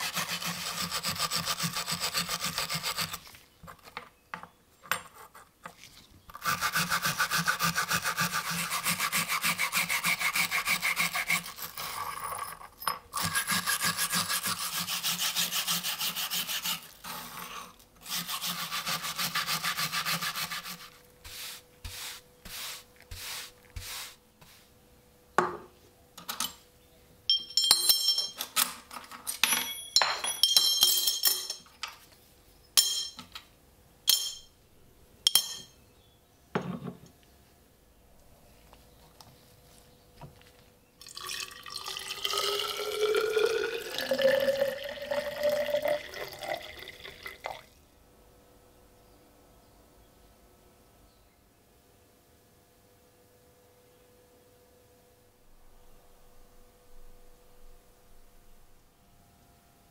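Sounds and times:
file rasping on steel blade: 0.0 - 3.2, 6.4 - 12.2, 13.2 - 24.1
metal parts clicking and clinking: 27.3 - 32.0.

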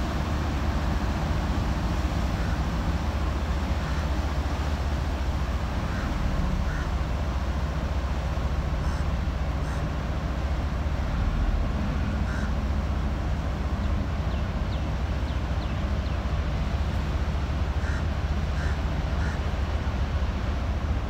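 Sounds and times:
diesel engine rumble: 0.0 - 21.0
propeller churning water: 0.0 - 21.0
crow cawing: 5.9 - 6.9, 12.3 - 12.6, 17.8 - 19.4.

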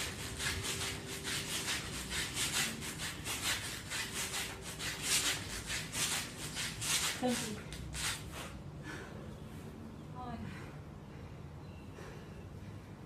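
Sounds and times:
quick hard breaths: 8.2 - 9.4.

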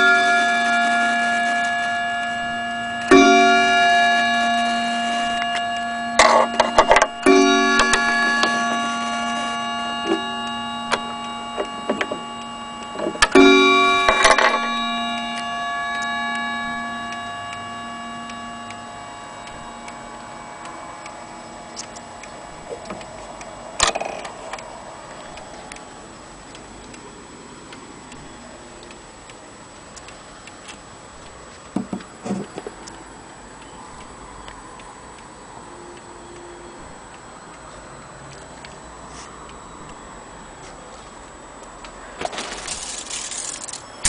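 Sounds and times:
clock gong striking: 0.0 - 26.5
clock ticking: 0.0 - 40.0.

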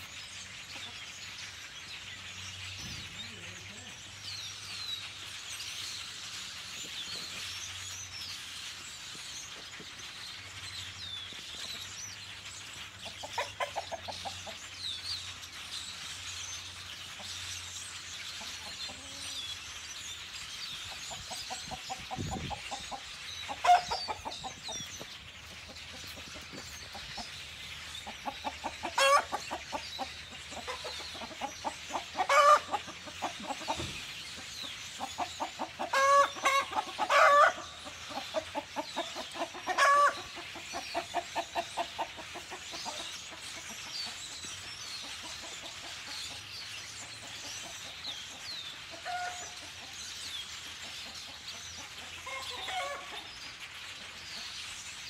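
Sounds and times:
chickens clucking: 0.0 - 55.0
loud chicken calls: 21.7 - 24.8, 28.0 - 43.0, 52.2 - 53.2.

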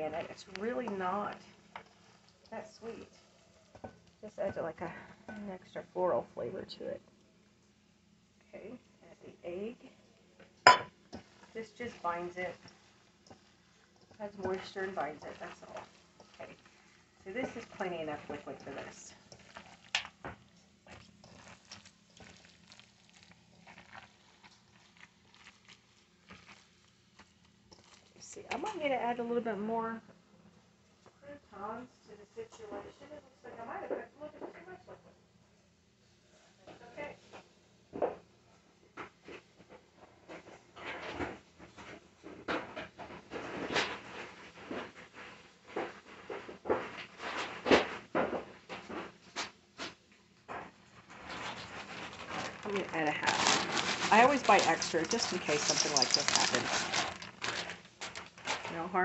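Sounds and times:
rustling and crinkling: 10.4 - 28.9, 39.0 - 59.0
knocks on metal bowl: 10.7 - 10.9
hands squelching wet stuffing: 14.1 - 20.2, 20.8 - 26.9, 52.3 - 58.2.

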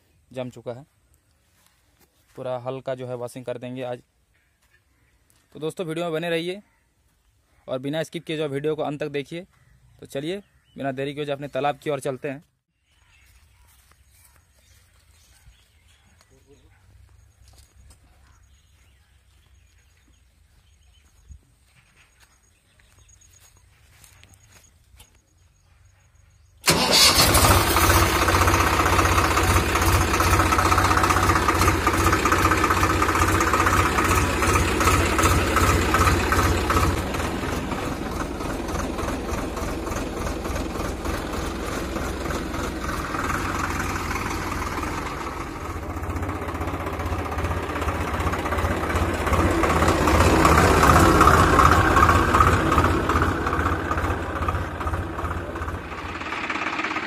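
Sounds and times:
tractor diesel engine running: 26.1 - 57.0.

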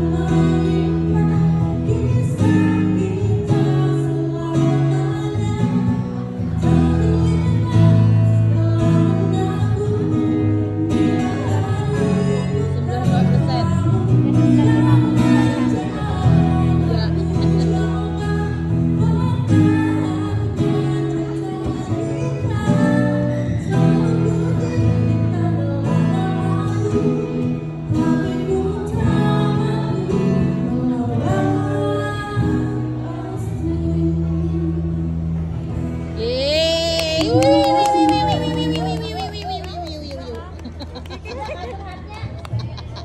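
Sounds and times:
woman singing into microphone: 0.0 - 41.4
acoustic guitar: 0.0 - 43.0.

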